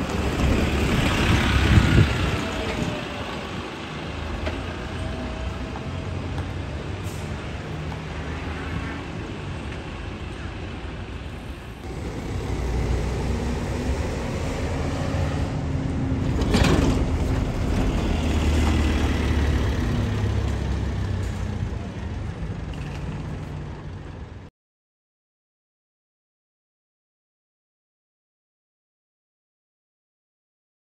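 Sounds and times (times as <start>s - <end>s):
bus engine rumble: 0.0s - 24.5s
street traffic: 0.0s - 24.5s.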